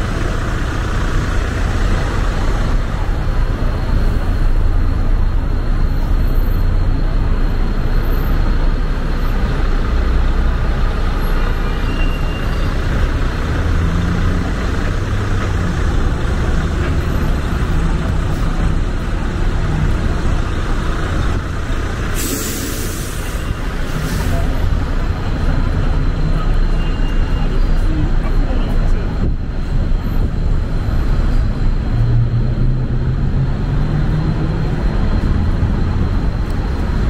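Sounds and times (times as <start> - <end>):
traffic rumble: 0.0 - 37.0
short sharp hiss: 22.2 - 23.3.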